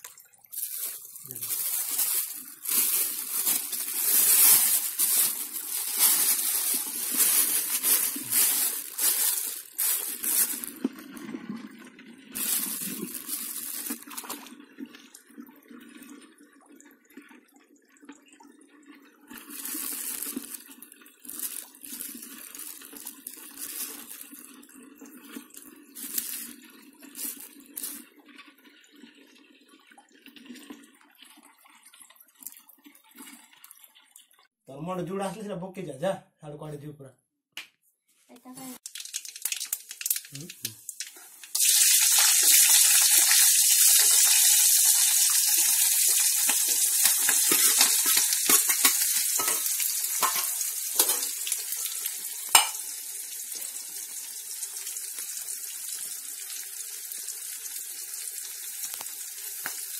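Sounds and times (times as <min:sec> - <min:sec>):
plastic bag crinkling: 0:00.0 - 0:11.2, 0:12.4 - 0:14.5, 0:19.3 - 0:28.1, 0:38.5 - 0:51.9, 0:52.5 - 0:52.8.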